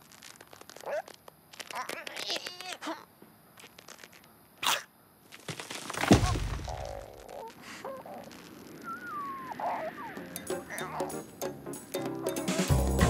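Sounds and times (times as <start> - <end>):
squeaky gliding vocal noises: 6.7 - 11.4.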